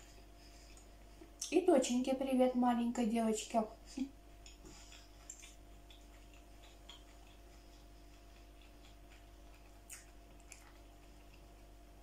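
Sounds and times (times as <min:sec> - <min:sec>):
faint steady hum: 0:00.0 - 0:12.0
fork clicks from eating: 0:04.4 - 0:07.5.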